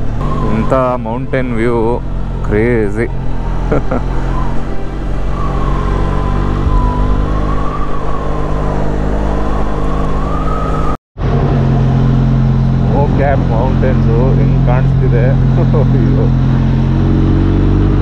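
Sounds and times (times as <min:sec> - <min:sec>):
thin wavering high tone: 0:00.2 - 0:10.7.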